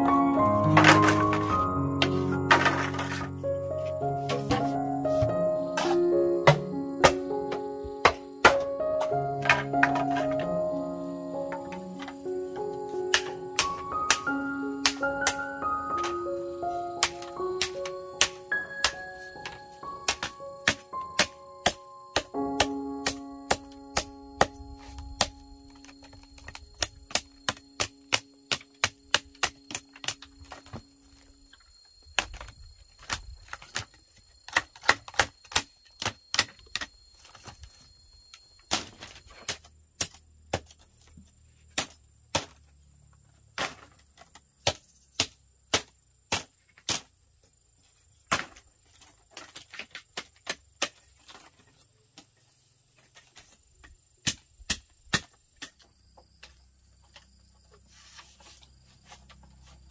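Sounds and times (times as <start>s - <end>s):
machete chopping bamboo: 13.1s - 14.2s, 20.1s - 30.7s, 34.5s - 36.9s, 38.7s - 40.8s, 41.7s - 42.6s, 43.6s - 47.1s, 49.4s - 51.3s, 54.2s - 55.9s.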